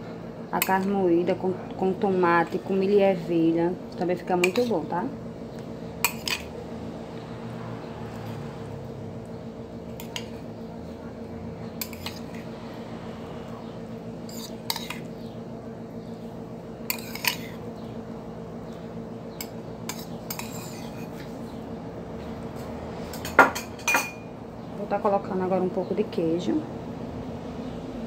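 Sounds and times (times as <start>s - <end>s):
steady low hum: 0.0s - 28.0s
metal spoon clinking on ceramic bowl: 23.2s - 24.3s.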